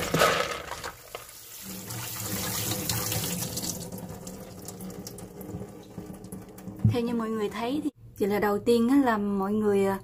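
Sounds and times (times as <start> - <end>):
water splashing and draining: 0.8 - 7.6.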